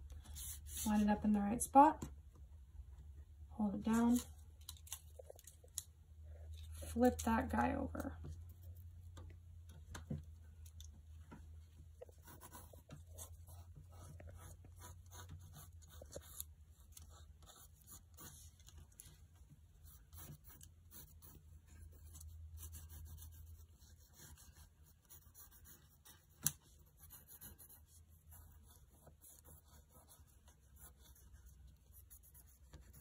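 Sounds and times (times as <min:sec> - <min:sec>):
low steady hum: 0:00.0 - 0:33.0
pencil scratching on paper: 0:00.2 - 0:01.2, 0:12.0 - 0:19.2, 0:19.8 - 0:33.0.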